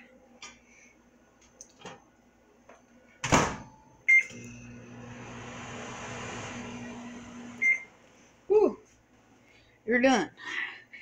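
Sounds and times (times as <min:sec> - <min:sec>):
microwave oven humming: 0:02.0 - 0:08.7.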